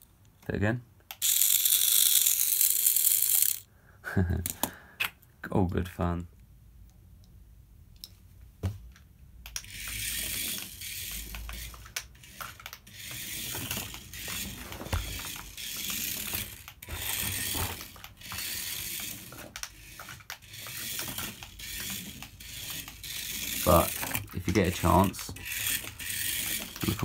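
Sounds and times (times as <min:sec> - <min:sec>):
small electric motor buzzing: 0:01.2 - 0:03.7, 0:09.6 - 0:27.0.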